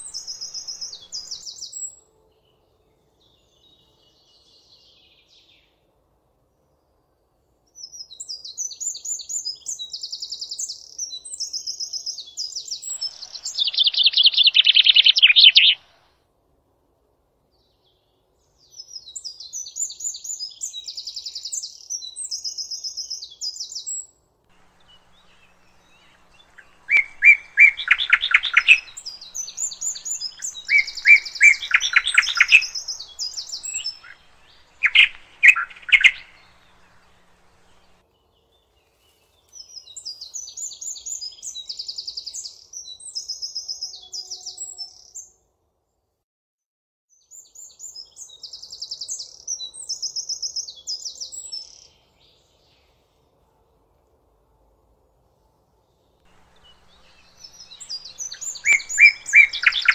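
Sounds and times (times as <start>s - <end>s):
songbird trilling: 0.0s - 1.8s, 12.9s - 15.9s, 24.6s - 38.0s, 56.3s - 59.9s.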